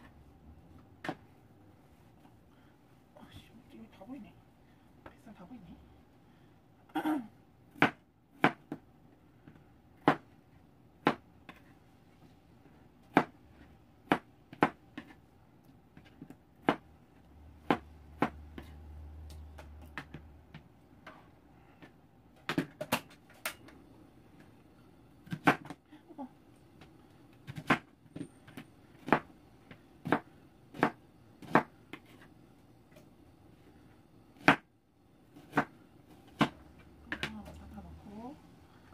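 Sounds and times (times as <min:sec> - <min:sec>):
knife chopping on cutting board: 0:07.7 - 0:08.8, 0:10.0 - 0:10.3, 0:13.1 - 0:13.4, 0:16.0 - 0:16.9, 0:17.6 - 0:18.8, 0:27.5 - 0:29.3, 0:30.0 - 0:32.3, 0:34.4 - 0:34.7, 0:35.4 - 0:37.4.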